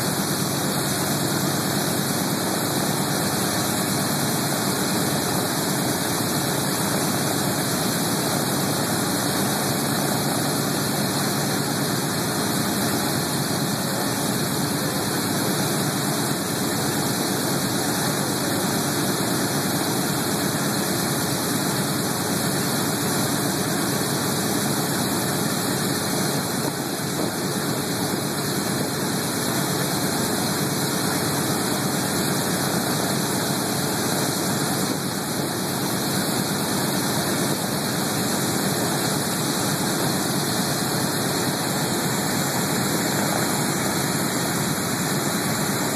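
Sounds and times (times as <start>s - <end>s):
radial aircraft engines idling: 5.4s - 18.9s, 37.2s - 45.9s.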